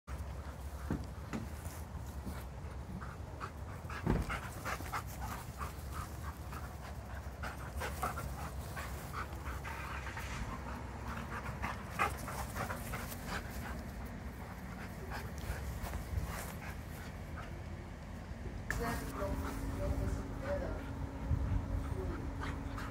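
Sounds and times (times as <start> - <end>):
dogs panting: 0.1 - 22.9
thump: 4.0 - 4.4.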